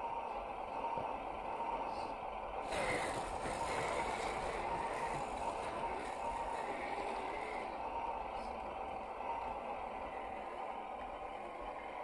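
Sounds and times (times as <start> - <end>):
electric motor and gears whining: 2.6 - 8.2.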